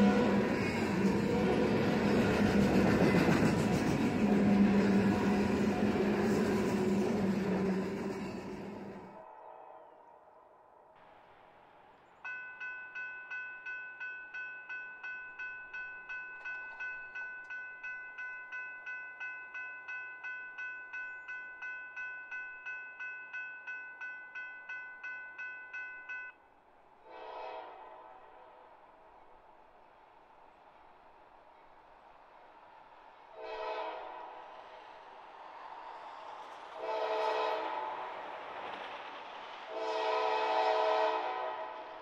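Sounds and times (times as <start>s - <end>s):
train horn blast: 0.0s - 2.6s, 27.0s - 28.8s, 33.3s - 34.4s, 36.8s - 38.1s, 39.7s - 42.0s
railroad crossing bell ringing: 12.2s - 26.4s.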